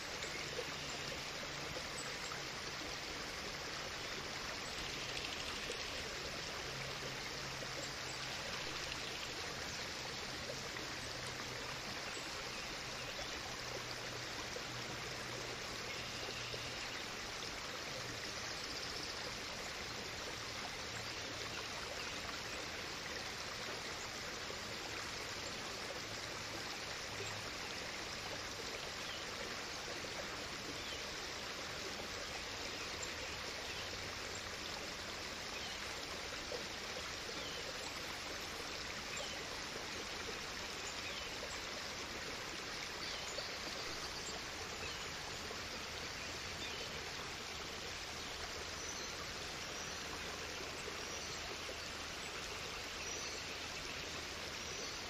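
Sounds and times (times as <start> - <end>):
running water rushing: 0.0 - 55.0.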